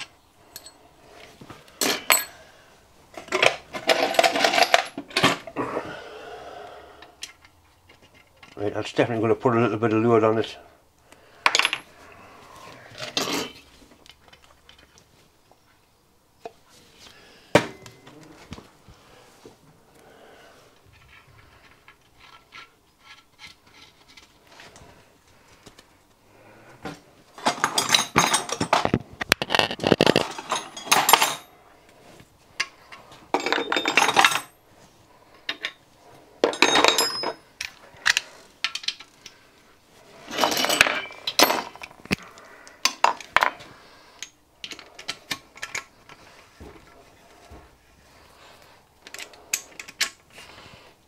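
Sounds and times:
light metal clinks: 0.0 - 0.8.

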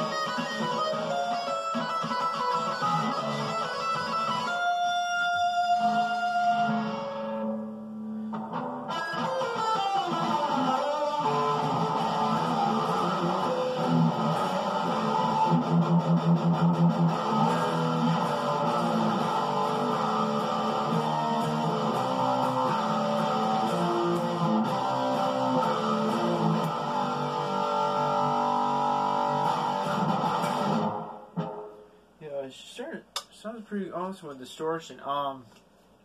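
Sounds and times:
distorted electric guitar: 0.0 - 32.0.

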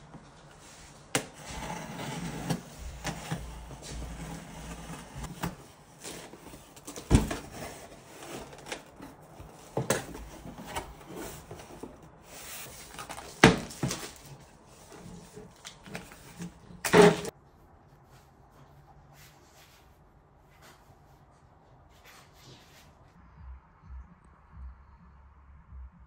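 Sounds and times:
cardboard flaps rustling: 1.2 - 17.3.

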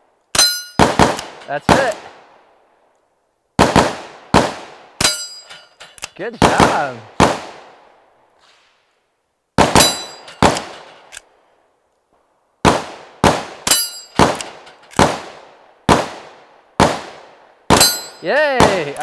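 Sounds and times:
rifle shots cracking: 0.3 - 2.3, 3.6 - 5.3, 6.0 - 7.8, 9.6 - 11.2, 12.6 - 19.0
bullet ringing on steel plate: 0.4 - 0.8, 5.0 - 6.0, 9.8 - 10.5, 13.7 - 14.2, 17.8 - 18.2.

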